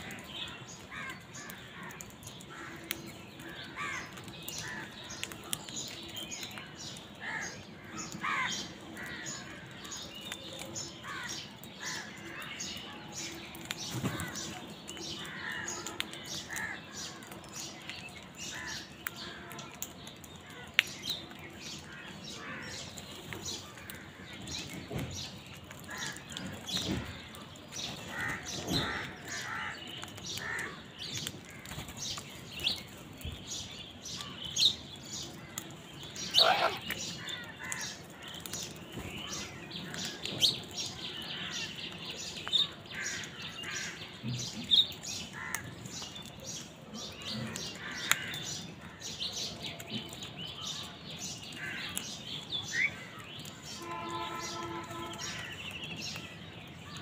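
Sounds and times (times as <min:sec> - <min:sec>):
small birds chirping: 0:00.0 - 0:57.0
crows cawing: 0:00.9 - 0:04.9, 0:07.2 - 0:09.8, 0:28.1 - 0:29.8, 0:30.4 - 0:30.8, 0:36.2 - 0:38.0, 0:45.4 - 0:45.7, 0:47.5 - 0:49.0.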